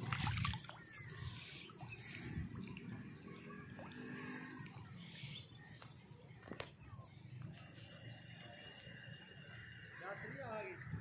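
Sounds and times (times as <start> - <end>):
faint bird chirps: 0.4 - 11.0.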